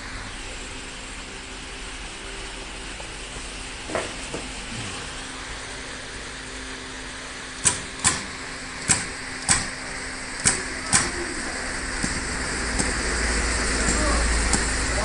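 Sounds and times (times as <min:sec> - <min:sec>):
steady low hum: 0:00.0 - 0:15.0
crimping machine clacks: 0:07.6 - 0:09.8, 0:10.4 - 0:11.3, 0:11.9 - 0:13.0, 0:13.7 - 0:15.0.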